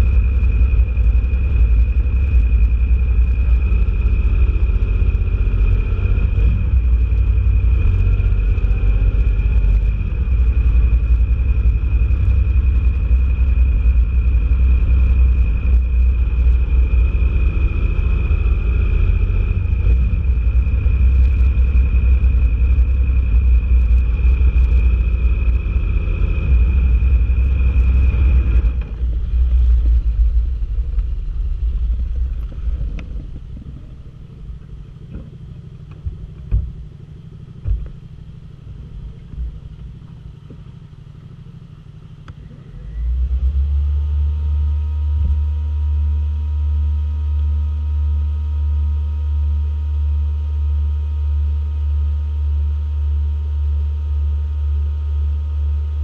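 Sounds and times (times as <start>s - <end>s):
wind noise: 0.0s - 40.7s
motorcycle engine rumbling: 0.0s - 46.5s
high whine: 0.0s - 56.0s.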